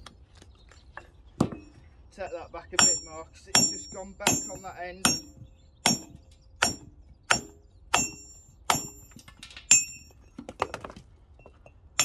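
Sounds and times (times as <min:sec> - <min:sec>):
hammer striking steel chisel on stone: 0:02.8 - 0:09.1.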